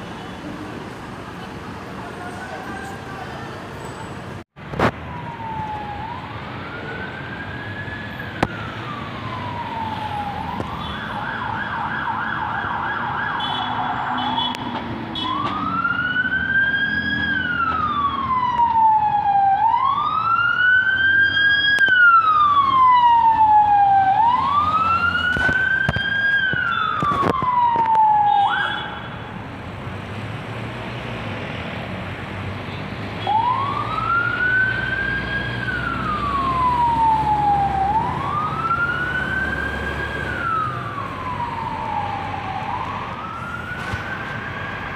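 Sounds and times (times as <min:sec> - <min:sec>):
police siren wailing and yelping: 0:04.8 - 0:14.5, 0:15.2 - 0:29.0, 0:33.2 - 0:44.9.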